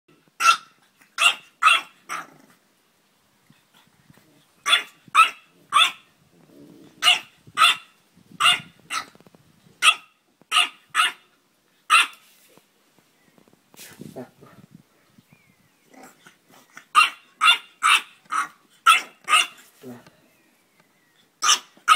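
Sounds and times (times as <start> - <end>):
puppy yapping: 0.4 - 2.3, 4.6 - 6.0, 9.8 - 11.3, 16.8 - 19.7, 21.4 - 21.9.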